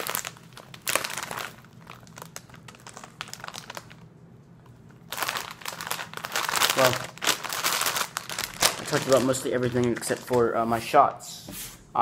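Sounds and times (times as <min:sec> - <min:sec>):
plastic bag crinkling: 0:00.0 - 0:04.1, 0:04.8 - 0:10.6.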